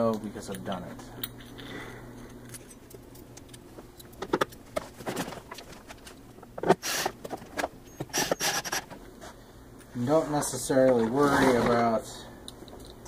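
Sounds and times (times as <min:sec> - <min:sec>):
cordless drill running: 0:08.1 - 0:08.8.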